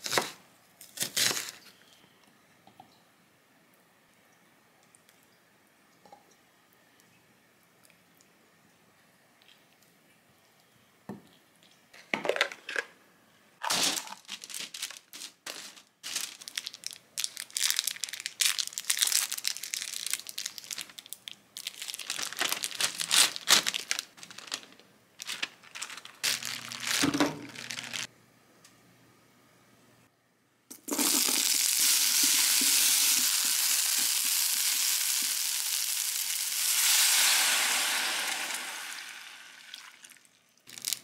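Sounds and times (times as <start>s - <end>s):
parchment paper crinkling: 13.6s - 28.1s, 40.7s - 41.0s
low steady hum: 20.6s - 30.9s.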